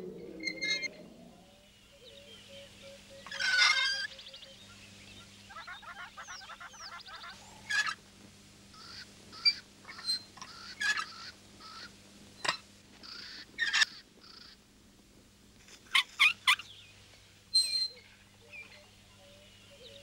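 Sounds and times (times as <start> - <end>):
birds squawking and honking: 0.0 - 8.0, 8.7 - 14.6.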